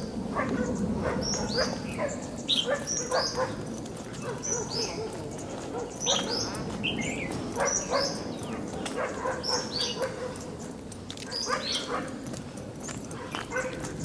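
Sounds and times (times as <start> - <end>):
dog barking: 0.3 - 6.8, 7.5 - 10.6, 11.2 - 12.2, 13.1 - 13.9.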